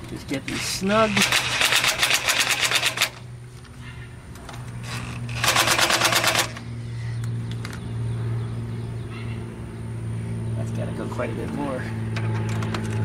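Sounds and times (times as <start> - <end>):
impact driver rattling: 1.0 - 3.3, 4.8 - 6.6.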